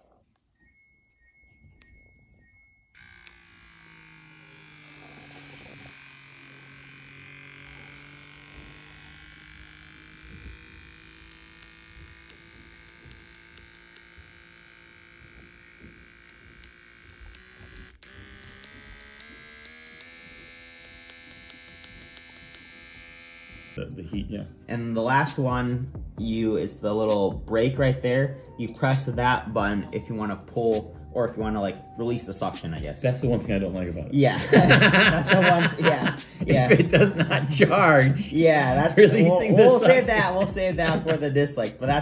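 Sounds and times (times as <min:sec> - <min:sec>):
faint electronic beeps: 0:00.0 - 0:23.8
suction pump humming: 0:00.0 - 0:33.7, 0:34.4 - 0:42.0.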